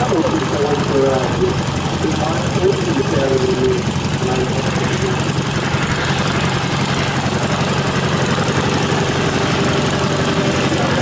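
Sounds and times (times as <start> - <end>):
small piston engine idling: 0.0 - 11.0.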